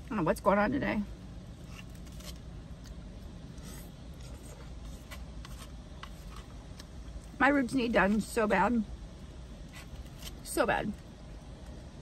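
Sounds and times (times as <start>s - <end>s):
low background rumble: 0.0s - 12.0s
plastic spoon scraping foam cup: 3.5s - 6.6s.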